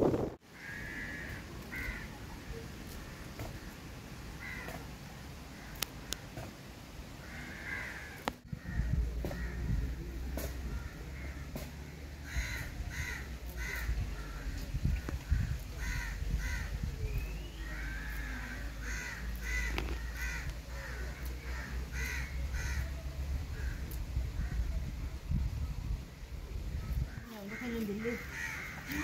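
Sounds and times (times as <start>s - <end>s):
bird cawing: 0.5s - 2.2s, 4.4s - 4.8s, 7.2s - 9.7s, 10.7s - 14.6s, 15.3s - 16.8s, 17.6s - 23.0s, 27.0s - 29.0s
steady low rumble: 7.0s - 29.0s.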